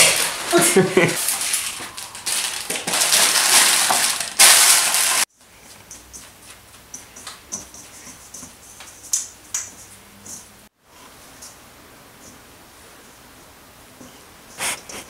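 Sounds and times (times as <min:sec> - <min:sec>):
paper bag rustling: 0:00.0 - 0:05.3
hand working dough in bowl: 0:00.0 - 0:10.5.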